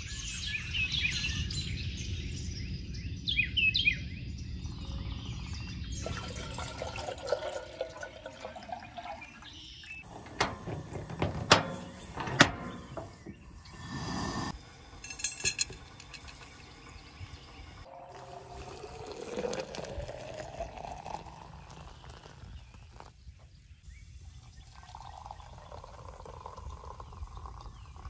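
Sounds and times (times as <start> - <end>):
birds chirping: 0.0 - 28.0
water pouring: 6.0 - 15.2, 17.8 - 23.2, 24.2 - 28.0
water running into a metal kettle: 6.0 - 23.1, 24.2 - 28.0
sharp metal clanks: 10.1 - 13.4.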